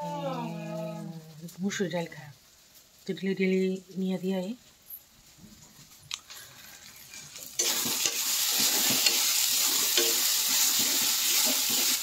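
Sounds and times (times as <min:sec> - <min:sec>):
food sizzling in oil: 0:00.0 - 0:12.0
spatula scraping a pan: 0:07.1 - 0:12.0.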